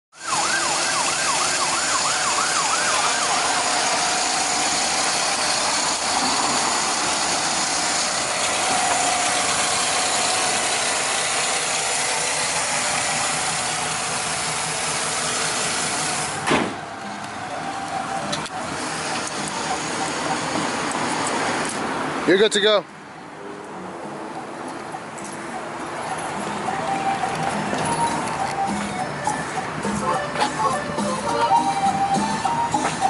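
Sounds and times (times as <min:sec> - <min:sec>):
siren yelping: 0:00.1 - 0:10.7, 0:15.5 - 0:21.0, 0:24.2 - 0:33.0
engine running with ticking: 0:00.2 - 0:21.8, 0:24.3 - 0:31.4.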